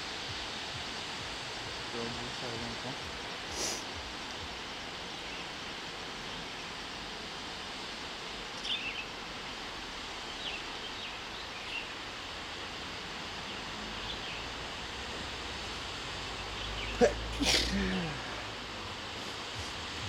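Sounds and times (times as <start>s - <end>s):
distant waterfall rushing: 0.0s - 20.0s
bird chirps: 8.6s - 9.1s.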